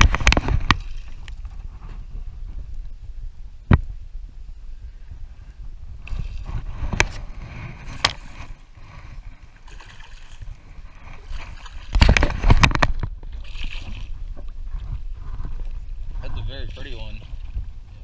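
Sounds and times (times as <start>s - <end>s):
fish splashing in water: 9.1s - 14.2s.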